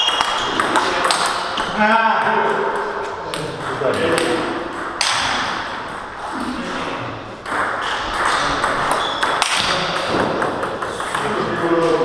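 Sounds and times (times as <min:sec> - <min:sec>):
table tennis ball clicking off bats: 0:00.0 - 0:01.7
ball bouncing on table: 0:00.0 - 0:05.7, 0:07.4 - 0:12.0.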